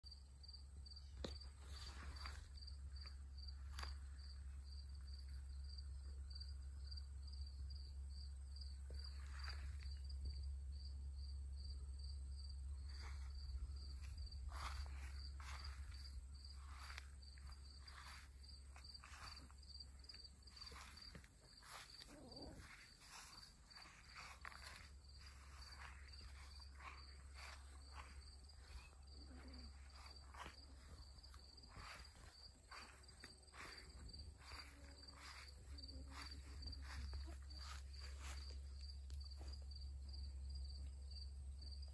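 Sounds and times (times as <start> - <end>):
cricket chirping: 0.0 - 41.9
footsteps rustling in grass: 1.0 - 5.5, 8.9 - 10.4, 12.7 - 40.2.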